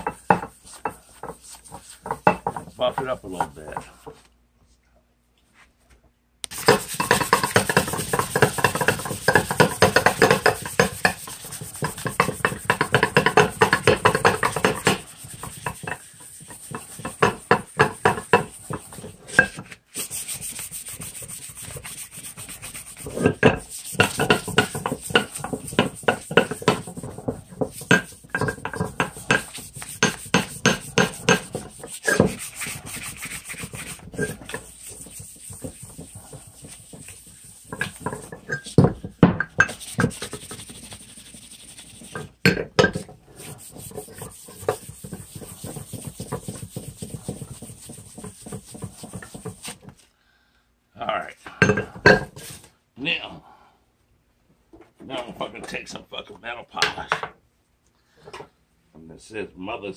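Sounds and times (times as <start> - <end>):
sandpaper rubbing on metal: 6.5 - 38.8, 39.6 - 42.3, 43.3 - 49.9.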